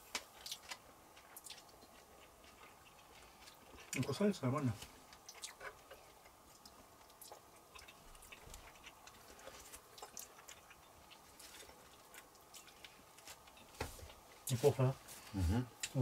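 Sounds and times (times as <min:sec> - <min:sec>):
quiet chewing: 0:00.0 - 0:16.0.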